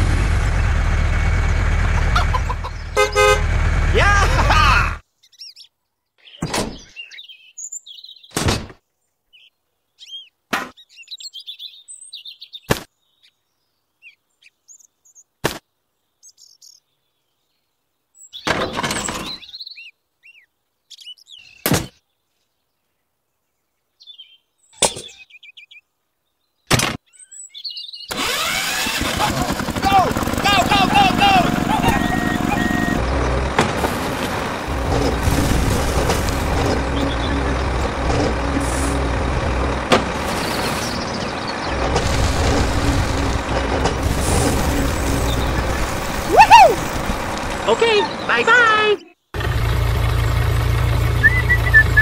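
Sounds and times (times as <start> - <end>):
small birds chirping: 1.4 - 3.3, 5.0 - 28.1, 36.0 - 52.0.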